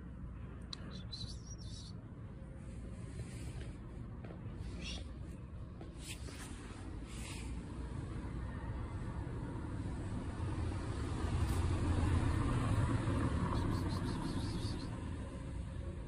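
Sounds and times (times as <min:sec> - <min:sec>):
vehicle passing with low rumble: 0:02.0 - 0:16.0.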